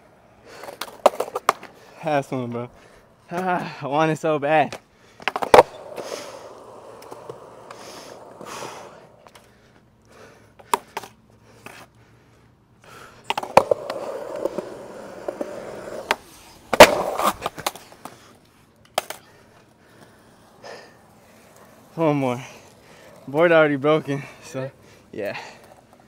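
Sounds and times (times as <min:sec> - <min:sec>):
skateboard wheels rolling on concrete: 0:00.0 - 0:26.0
skateboard knocks and clatters: 0:00.6 - 0:01.8, 0:04.7 - 0:09.4, 0:13.3 - 0:18.2.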